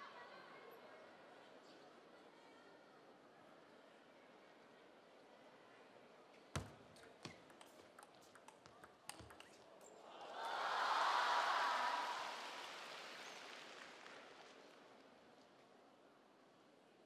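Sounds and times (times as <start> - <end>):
table tennis ball clicks: 6.6 - 9.9
crowd applause: 10.0 - 15.2.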